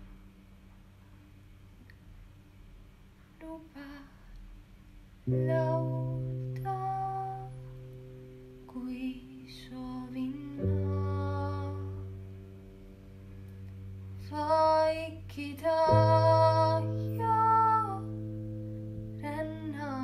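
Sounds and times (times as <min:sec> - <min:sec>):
person singing slow melody: 0:03.4 - 0:04.4, 0:05.3 - 0:07.8, 0:08.6 - 0:12.3, 0:13.6 - 0:20.0.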